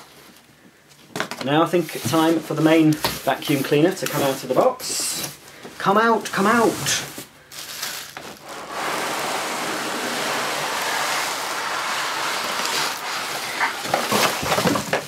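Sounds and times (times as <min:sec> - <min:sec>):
plastic wrapping rustling: 0:05.2 - 0:15.0
cardboard scraping inside box: 0:07.8 - 0:15.0.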